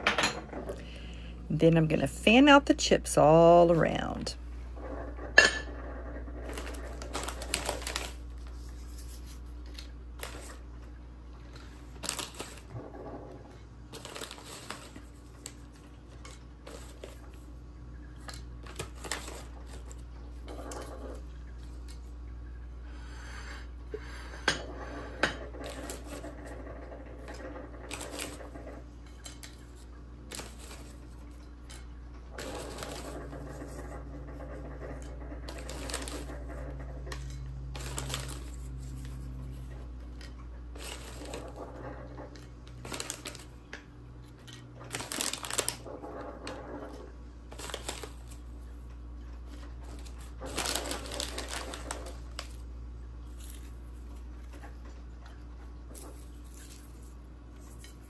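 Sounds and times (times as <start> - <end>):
chip bag crinkling: 6.3 - 12.8, 13.8 - 20.9, 27.2 - 31.5, 32.3 - 33.8, 35.2 - 46.8, 47.5 - 54.9.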